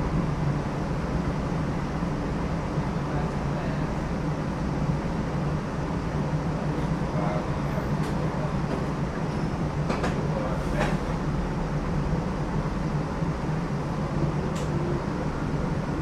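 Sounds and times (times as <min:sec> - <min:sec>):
low hum of streetcar motors: 0:00.0 - 0:16.0
wheels rumbling on track: 0:00.0 - 0:16.0.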